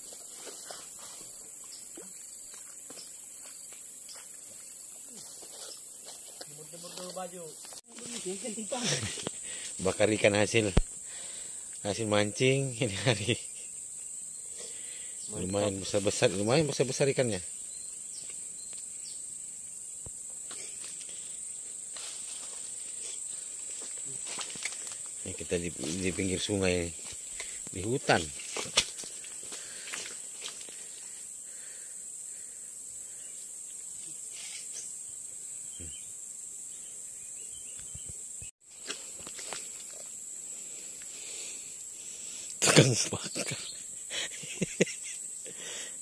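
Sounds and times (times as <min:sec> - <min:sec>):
insects droning: 0:00.0 - 0:46.0
rustling in dry leaves: 0:05.0 - 0:09.7, 0:20.6 - 0:31.2.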